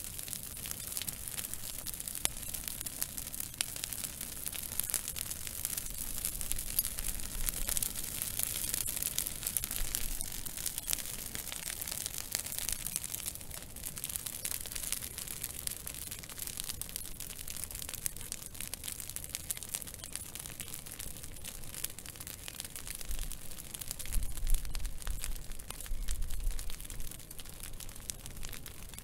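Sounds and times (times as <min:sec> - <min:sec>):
burning twigs crackling: 0:00.0 - 0:29.0.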